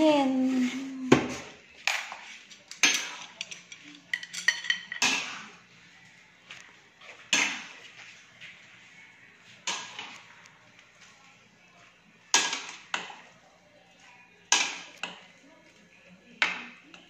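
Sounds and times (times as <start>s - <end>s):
metal kitchenware clattering: 2.4s - 5.6s.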